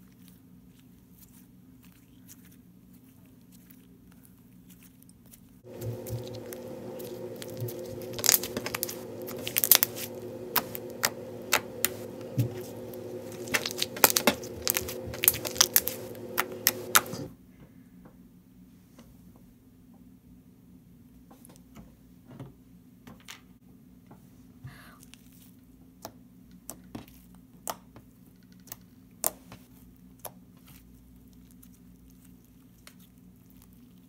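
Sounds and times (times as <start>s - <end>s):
slime popping and crackling: 5.7s - 17.2s
steady low hum: 5.7s - 17.3s.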